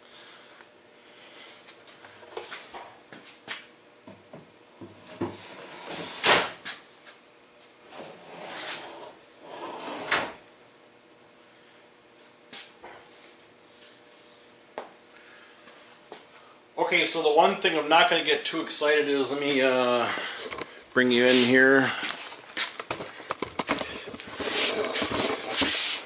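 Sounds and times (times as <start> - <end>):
drawers sliding on metal slides: 5.3 - 6.5, 7.9 - 10.4, 24.3 - 26.0.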